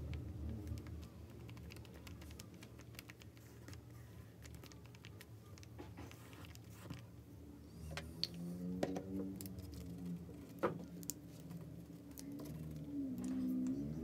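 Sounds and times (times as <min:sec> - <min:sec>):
fingertips tapping paper: 0:00.1 - 0:07.1.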